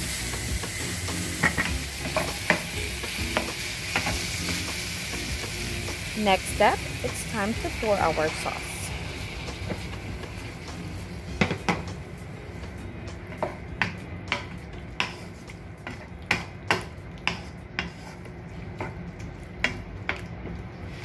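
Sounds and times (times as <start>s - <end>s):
wooden spatula tapping metal wok: 1.4s - 4.8s, 13.0s - 15.2s.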